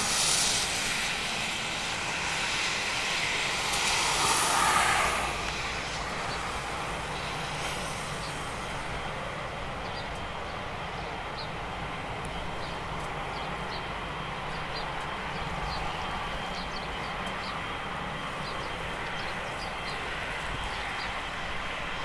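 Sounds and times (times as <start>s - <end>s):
jet engines idling: 0.0s - 22.0s.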